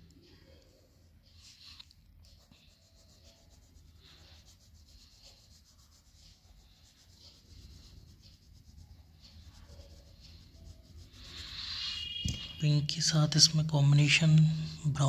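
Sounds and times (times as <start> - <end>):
crayon scratching on paper: 0.5 - 12.6.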